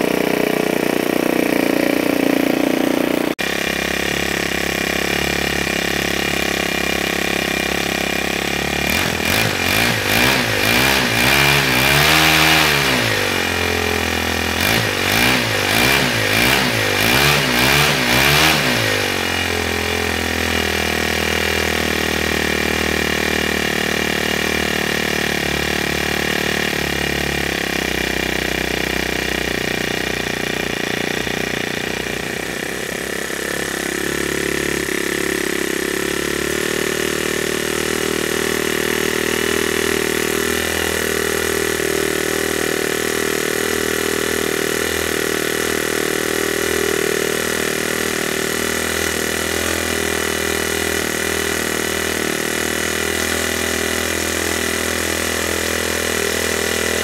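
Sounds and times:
string trimmer engine running: 0.0s - 57.0s.

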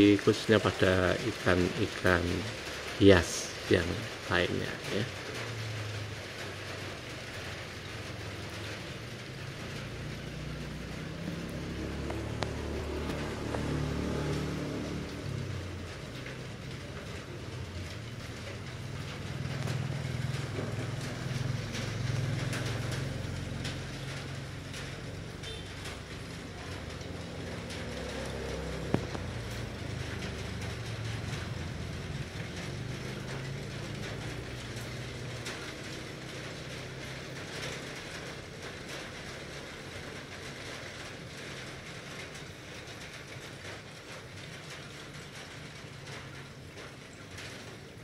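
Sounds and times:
aquarium aerator humming: 10.1s - 15.5s.

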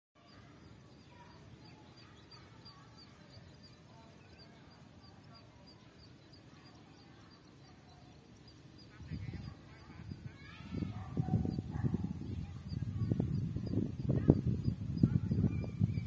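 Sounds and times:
faint high repeating chirp: 0.2s - 10.6s
distant bird chirps: 0.2s - 16.0s
low wind rumble: 8.7s - 16.0s.

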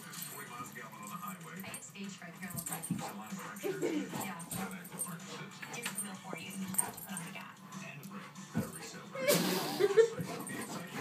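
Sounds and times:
puppy whining: 8.6s - 11.0s.

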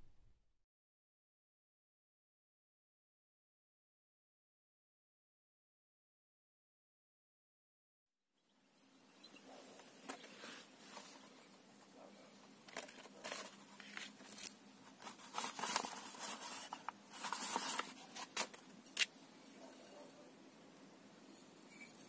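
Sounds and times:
paper rustling and crinkling: 12.7s - 19.1s.

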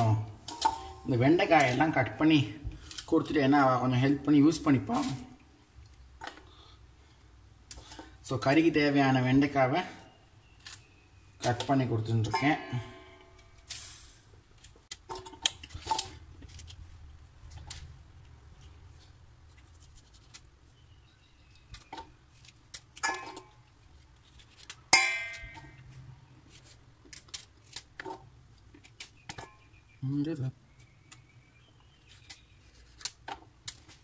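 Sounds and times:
steel bowl ringing clink: 12.3s - 13.4s, 25.0s - 25.6s.

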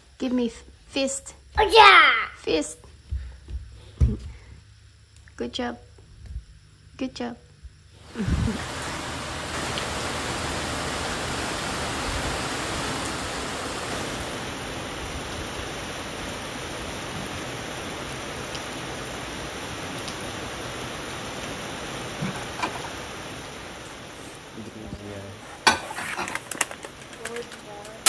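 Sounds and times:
steady rain falling: 7.6s - 28.0s.

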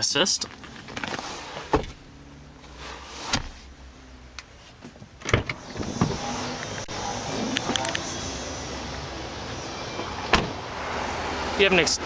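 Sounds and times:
car door latch clunk: 5.2s - 6.2s, 10.3s - 10.6s.

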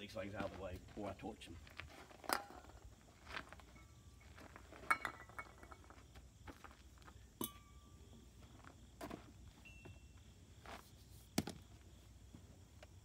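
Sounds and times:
metal cans clinking and knocking: 2.2s - 2.8s, 3.6s - 6.0s.

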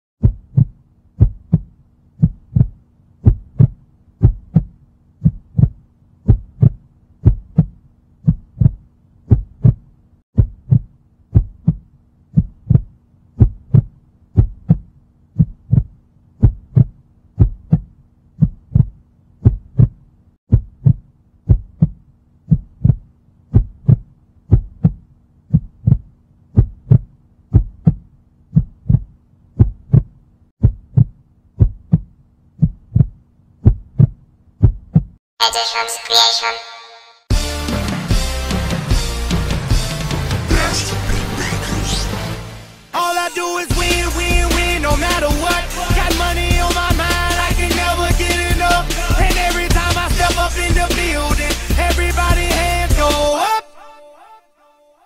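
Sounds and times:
heartbeat double thumps: 0.2s - 35.2s.

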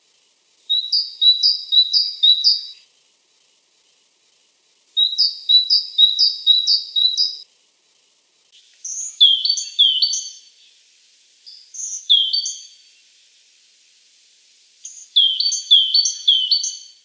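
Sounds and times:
great tit singing: 0.7s - 2.8s, 5.0s - 7.4s, 8.6s - 10.8s, 11.5s - 13.1s, 14.8s - 17.0s
high whistled bird notes: 0.7s - 2.8s, 5.0s - 7.4s, 8.8s - 10.6s, 11.5s - 12.9s, 14.9s - 17.0s.

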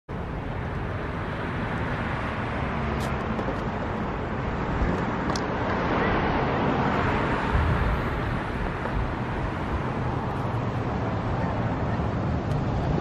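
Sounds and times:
road traffic noise: 0.1s - 13.0s.

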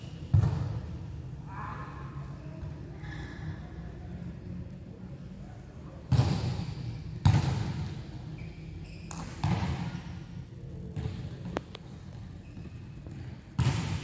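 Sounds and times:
volleyball smacks echoing in hall: 6.1s - 8.0s, 9.1s - 10.2s, 13.2s - 14.0s.

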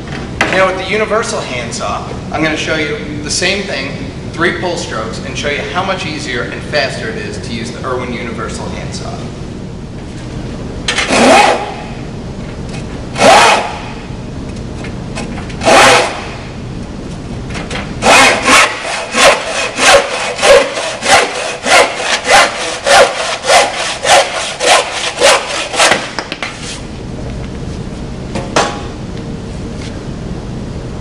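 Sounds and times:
handsaw cutting wooden board: 11.1s - 11.8s, 13.2s - 13.8s, 15.6s - 16.3s, 18.0s - 26.8s.

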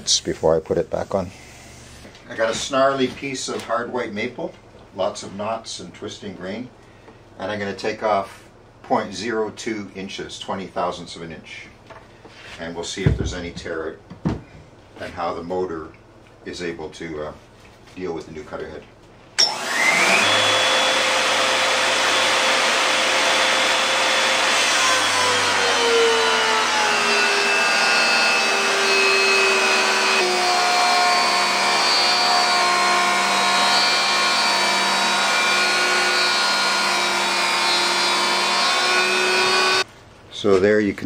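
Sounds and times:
jointer planing wood: 19.5s - 39.8s.

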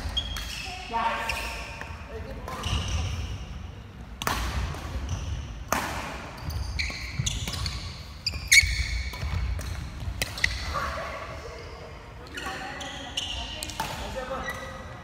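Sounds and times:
sneakers squeaking on wooden floor: 2.6s - 3.5s, 5.0s - 5.6s, 6.2s - 10.8s, 11.7s - 15.0s
racket striking shuttlecock: 4.2s - 7.9s, 8.5s - 10.7s.

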